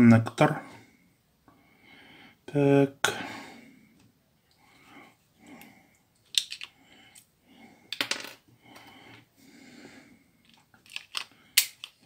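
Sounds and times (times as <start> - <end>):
plastic parts clicking: 6.2 - 7.3, 10.4 - 12.0.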